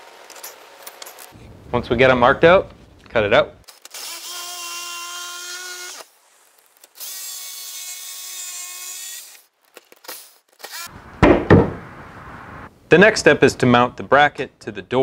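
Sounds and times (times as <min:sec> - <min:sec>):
loud knock: 0:11.2 - 0:11.9.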